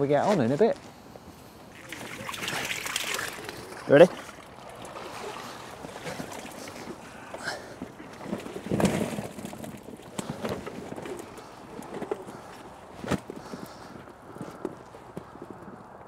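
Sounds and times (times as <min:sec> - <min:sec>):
water sloshing and dripping: 0:01.7 - 0:12.6
water splash: 0:01.8 - 0:07.0.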